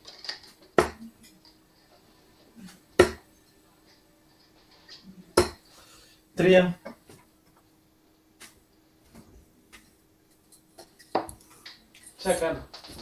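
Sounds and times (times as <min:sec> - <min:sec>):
dart hitting dartboard: 0:03.0 - 0:03.2.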